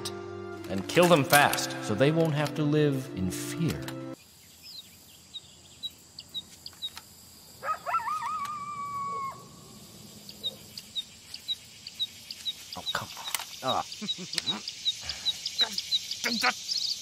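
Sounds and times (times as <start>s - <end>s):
small birds chirping: 4.1s - 17.0s.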